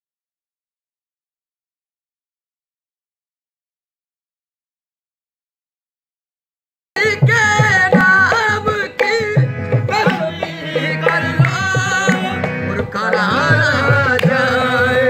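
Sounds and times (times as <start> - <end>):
harmonium: 7.0 - 15.0
man singing: 7.0 - 15.0.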